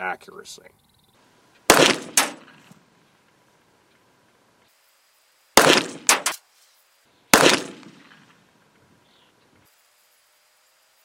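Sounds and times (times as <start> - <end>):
pistol shots: 1.7 - 2.7, 5.6 - 6.4, 7.3 - 8.4
weaker sharp crack: 1.7 - 2.7, 5.6 - 6.4, 7.3 - 8.4.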